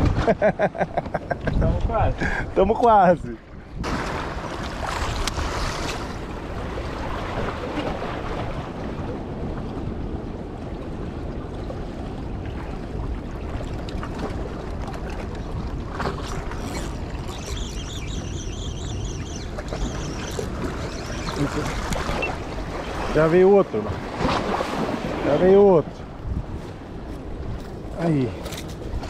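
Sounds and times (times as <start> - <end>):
wind buffeting microphone: 1.3 - 29.0
faint high chirring: 16.6 - 22.9
surf washing on rocks: 19.4 - 29.0.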